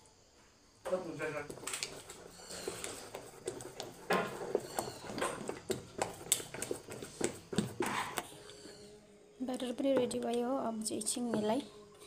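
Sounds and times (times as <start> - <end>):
batter squelching: 1.0 - 8.9.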